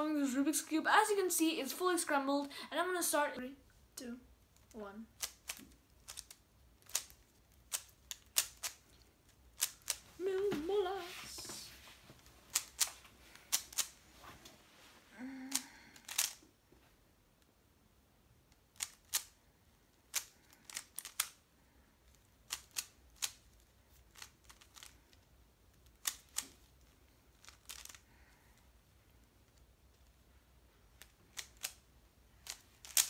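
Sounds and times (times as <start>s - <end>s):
puzzle cube layers clicking: 4.5s - 10.0s, 12.5s - 14.0s, 15.5s - 16.4s, 18.5s - 19.4s, 20.0s - 21.4s, 22.1s - 28.1s, 30.9s - 33.0s.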